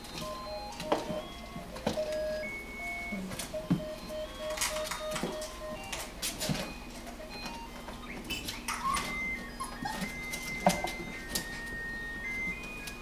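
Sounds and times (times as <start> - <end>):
simple electronic tune: 0.2 - 13.0
puppies scrambling on plastic: 7.4 - 11.7.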